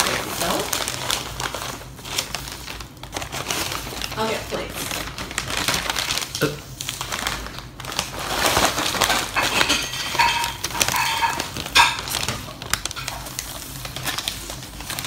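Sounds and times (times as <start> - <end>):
paper wrapping crinkling: 0.0 - 15.0
plates clinking: 9.2 - 12.3.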